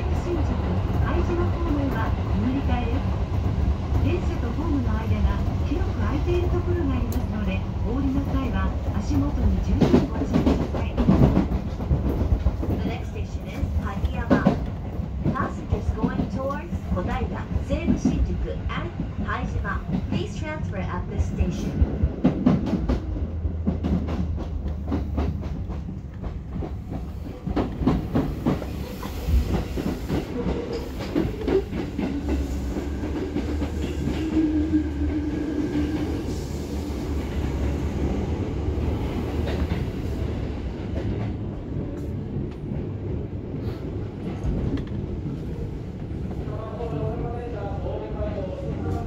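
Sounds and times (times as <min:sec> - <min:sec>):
train rumble: 0:00.0 - 0:49.0
train wheels clicking over rail joints: 0:22.1 - 0:34.4.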